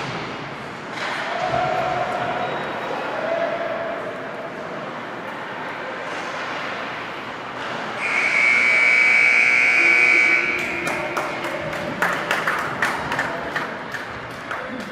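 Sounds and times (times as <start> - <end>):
ice rink ambience: 0.0 - 14.9
scoreboard horn buzz: 8.0 - 11.1.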